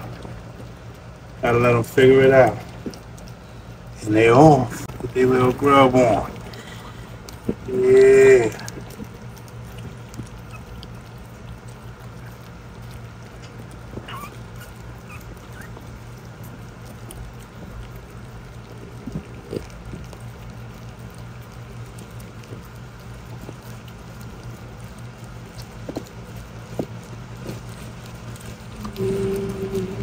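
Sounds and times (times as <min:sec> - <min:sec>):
puppies lapping and smacking food: 0:00.0 - 0:30.0
steady low hum: 0:00.0 - 0:30.0
short pitched sound: 0:28.8 - 0:30.0.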